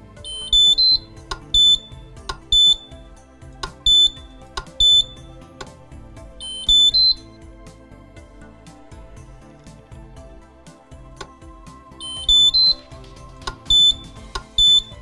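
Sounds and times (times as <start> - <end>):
short high beeps: 0.3 - 1.9, 2.5 - 2.9, 3.8 - 5.2, 6.4 - 7.3, 12.0 - 12.8, 13.7 - 15.0.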